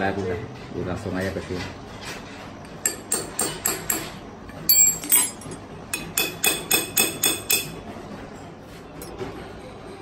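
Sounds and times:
ringing metal-on-metal taps: 0:04.7 - 0:07.8.

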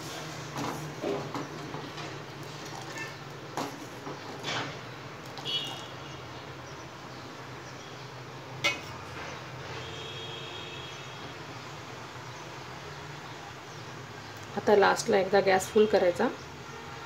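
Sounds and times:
metal ladle clinking on pot: 0:08.6 - 0:09.0.

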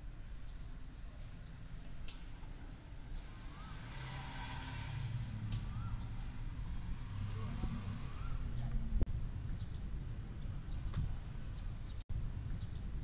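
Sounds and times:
low steady background rumble: 0:00.0 - 0:13.0
sharp clicks: 0:01.8 - 0:02.4, 0:05.5 - 0:05.8.

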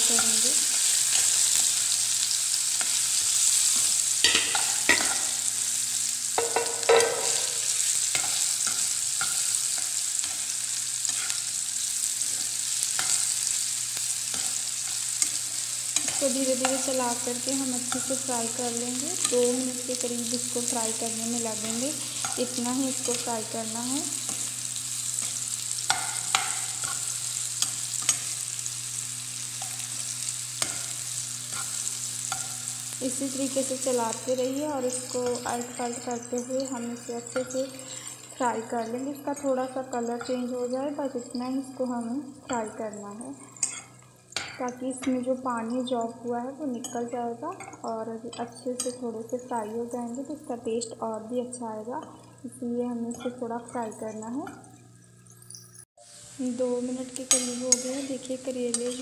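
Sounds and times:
vegetables sizzling in hot oil: 0:00.0 - 0:59.0
spatula clacking against pan: 0:06.4 - 0:07.4, 0:25.9 - 0:27.0
spatula scraping a pan: 0:06.4 - 0:11.6, 0:29.5 - 0:32.8
spatula stirring in pan: 0:06.4 - 0:34.2, 0:57.2 - 0:59.0.

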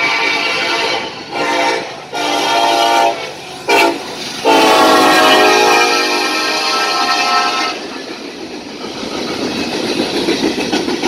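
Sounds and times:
locomotive air horn blasts: 0:00.0 - 0:08.0
train running noise: 0:00.0 - 0:11.0.

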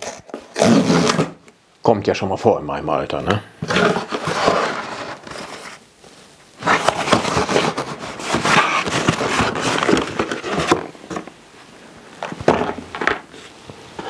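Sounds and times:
paper bag rustling: 0:03.6 - 0:05.8, 0:06.6 - 0:11.3.

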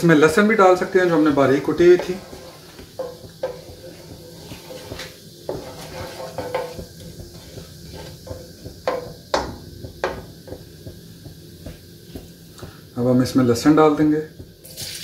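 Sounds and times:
spatula scraping a wok: 0:00.6 - 0:10.6.

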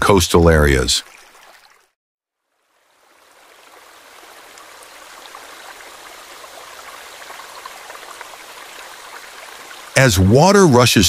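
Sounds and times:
water trickling: 0:00.5 - 0:11.0
small splashes: 0:01.0 - 0:02.0.

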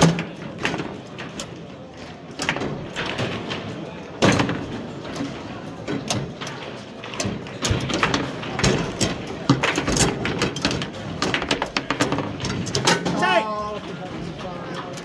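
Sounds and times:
ball knocking on plastic figures: 0:02.4 - 0:13.0.

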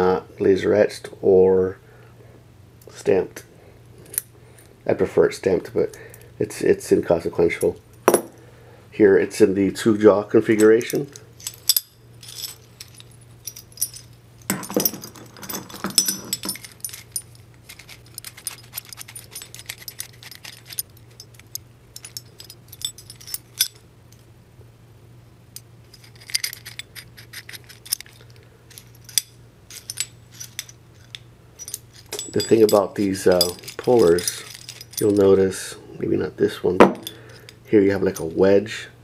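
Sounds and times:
metal parts clinking and jingling: 0:10.4 - 0:24.2, 0:25.6 - 0:35.7, 0:36.8 - 0:38.4.

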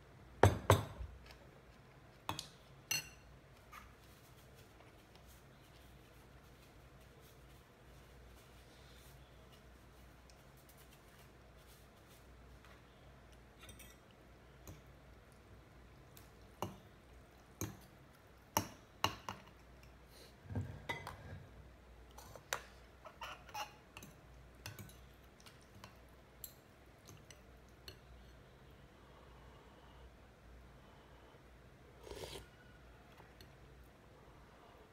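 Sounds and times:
spoons clinking on porcelain bowl: 0:02.3 - 0:03.4, 0:13.6 - 0:14.9, 0:23.2 - 0:28.1.

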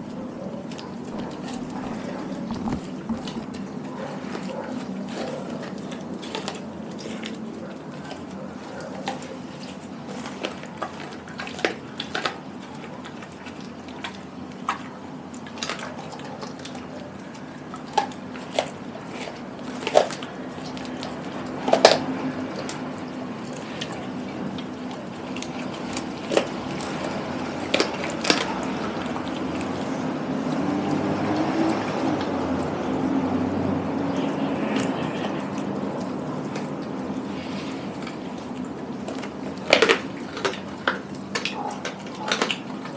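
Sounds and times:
dog licking and gnawing: 0:00.1 - 0:42.9
jaw clicks and snaps: 0:24.6 - 0:29.8, 0:37.8 - 0:42.9.

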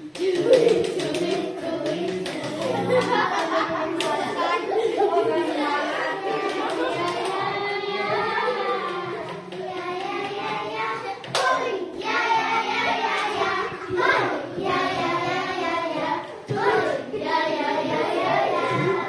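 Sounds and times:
girls singing together: 0:00.0 - 0:19.0
sharp clap-like knock: 0:11.2 - 0:11.7.

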